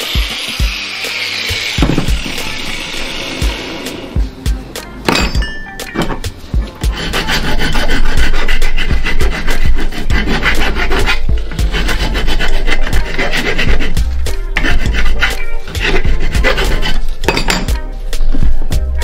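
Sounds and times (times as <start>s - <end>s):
hand file rasping on metal: 6.0s - 17.8s.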